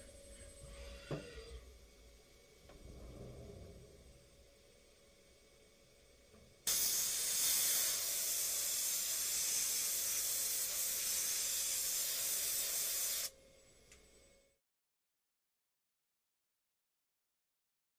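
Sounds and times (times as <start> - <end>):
compressed air blow gun hissing: 6.7 - 13.3.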